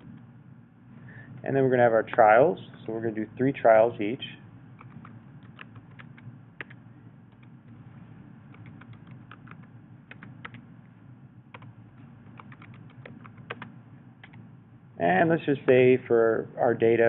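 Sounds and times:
low steady hum: 0.0 - 17.0
typing on computer keyboard: 4.8 - 7.5, 8.5 - 10.6, 11.5 - 14.4.

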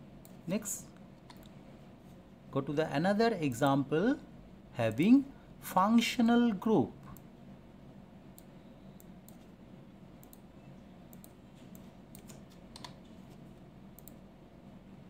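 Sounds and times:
mouse and keyboard clicks: 11.1 - 13.1.

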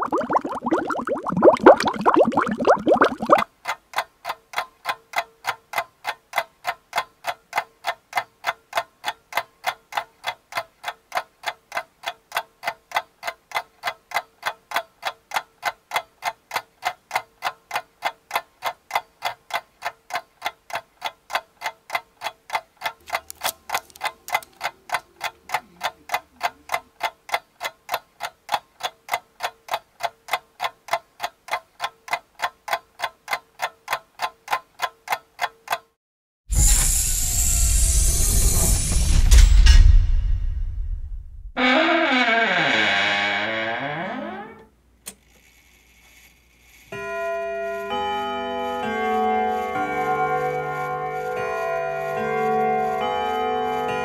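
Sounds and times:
clock-like ticking: 0.0 - 36.0, 48.9 - 54.0.

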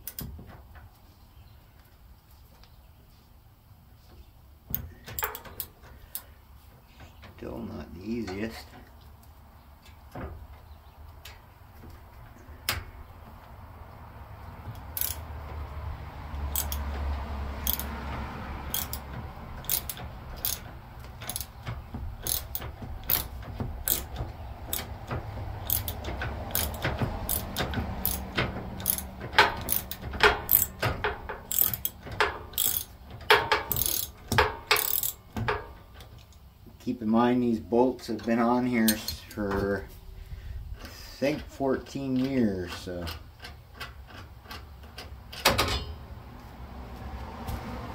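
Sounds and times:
ratchet wrench clicking: 5.2 - 6.3, 14.7 - 15.4, 16.5 - 17.0, 17.6 - 18.0, 18.7 - 35.7.

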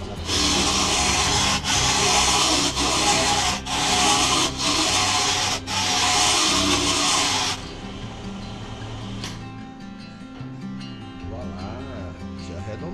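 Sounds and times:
chisel scraping spinning wood: 0.0 - 7.6
lathe motor hum: 0.0 - 7.8.

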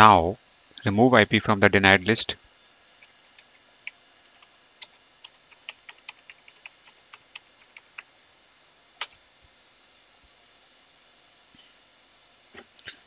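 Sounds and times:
computer keyboard typing: 4.4 - 8.1, 9.0 - 9.2.

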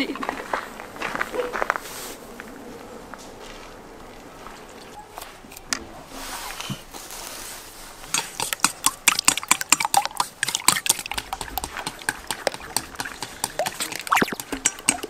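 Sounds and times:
chopsticks clicking in metal bowl: 8.1 - 15.0
liquid sloshing: 8.1 - 15.0.

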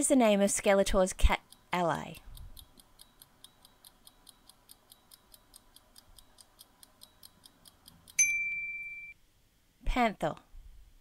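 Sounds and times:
faint clock-like ticking: 0.6 - 8.3
loud ding: 8.2 - 9.2.

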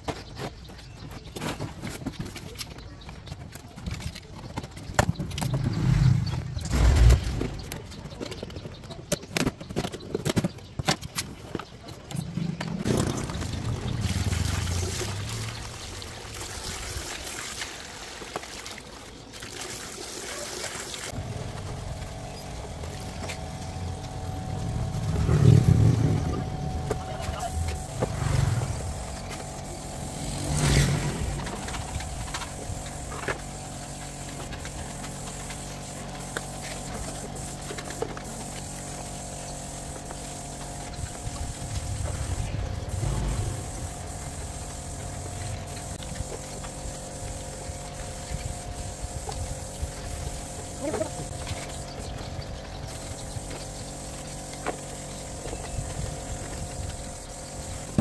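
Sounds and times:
machine humming: 21.1 - 48.2.

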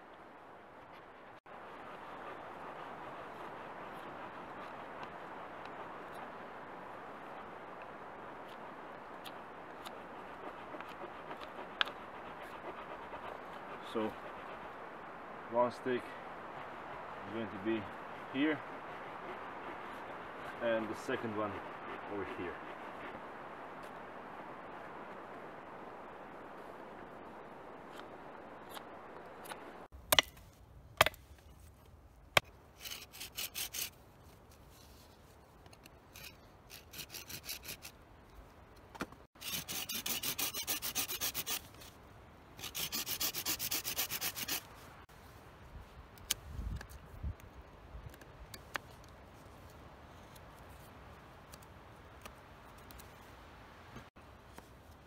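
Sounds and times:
knife sawing green wood: 9.2 - 14.6, 32.4 - 34.0, 36.1 - 38.0, 39.4 - 41.9, 42.6 - 44.7.

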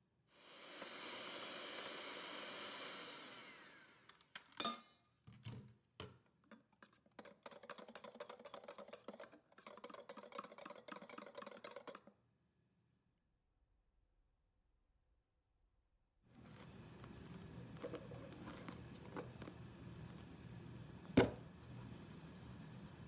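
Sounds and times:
electric hand mixer: 0.4 - 4.1
whisk scraping a steel bowl: 6.8 - 12.0.

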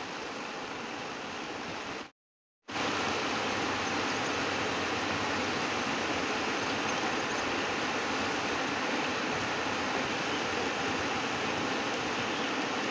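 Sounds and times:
fast-flowing river rushing: 2.7 - 12.9.

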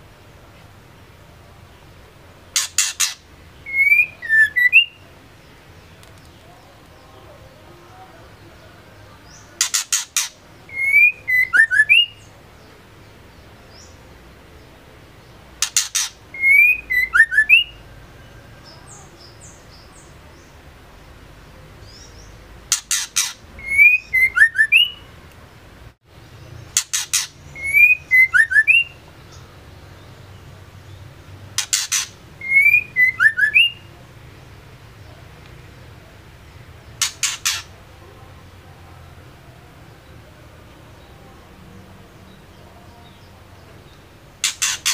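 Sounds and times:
bird calling with rasps and whistles: 2.5 - 5.0, 9.3 - 12.3, 15.6 - 18.0, 21.8 - 25.1, 26.6 - 29.5, 31.5 - 33.9, 36.9 - 37.8, 44.4 - 44.9.

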